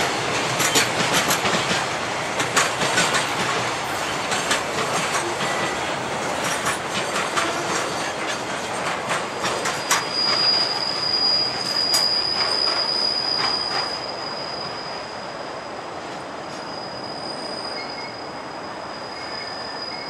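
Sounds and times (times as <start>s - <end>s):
freight train wheels clacking: 0.0s - 14.1s.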